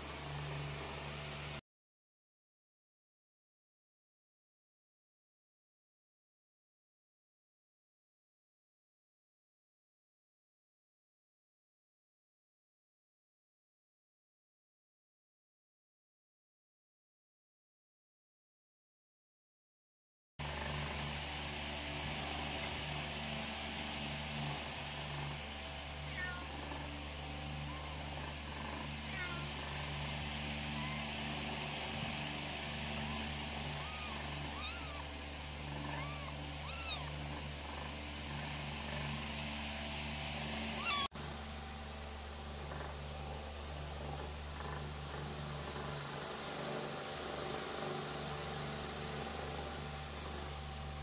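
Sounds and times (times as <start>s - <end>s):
steady low hum: 0.0s - 1.6s, 20.4s - 51.0s
kittens mewing: 25.9s - 26.9s, 27.5s - 32.1s, 32.9s - 37.5s, 40.8s - 41.1s.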